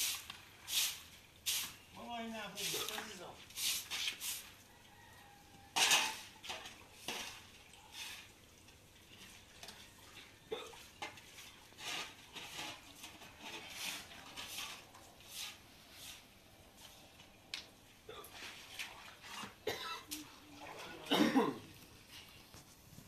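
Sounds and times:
broom sweeping wet concrete: 0:00.0 - 0:04.6, 0:06.2 - 0:08.4, 0:10.8 - 0:17.2, 0:18.3 - 0:21.1.

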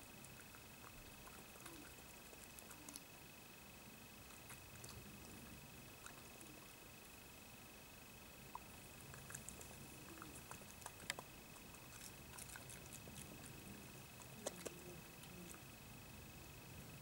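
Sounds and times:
badger crunching food: 0:04.2 - 0:06.6, 0:08.8 - 0:15.7.

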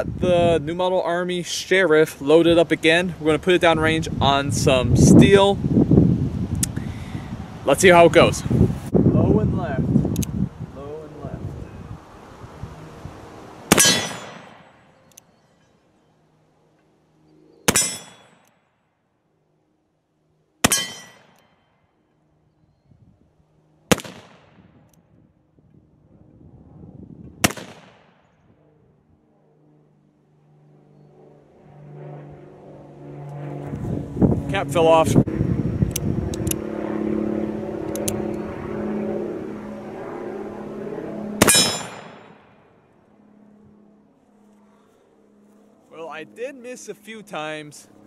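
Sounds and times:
revolver gunshot: 0:13.7 - 0:14.8, 0:17.7 - 0:18.4, 0:20.6 - 0:21.4, 0:23.9 - 0:24.8, 0:27.4 - 0:28.3, 0:41.4 - 0:42.5
steel target ringing: 0:13.7 - 0:14.8, 0:17.7 - 0:18.4, 0:20.6 - 0:21.5, 0:41.4 - 0:42.5
low engine-like hum: 0:28.3 - 0:48.0.

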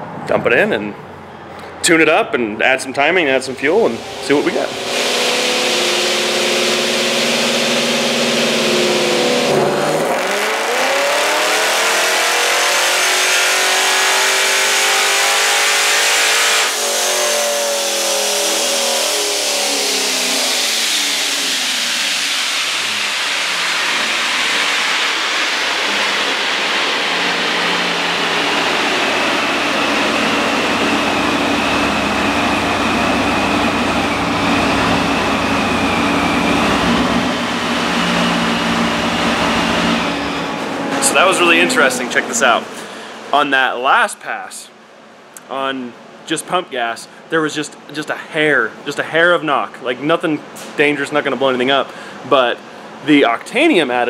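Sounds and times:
supercharger whine: 0:02.8 - 0:43.8
car engine revving: 0:03.4 - 0:43.5.

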